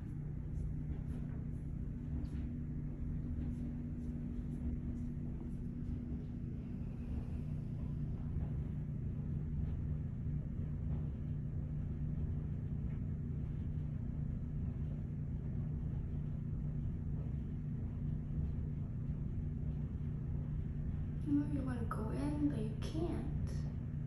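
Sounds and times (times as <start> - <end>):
low mechanical hum: 0.0 - 24.0.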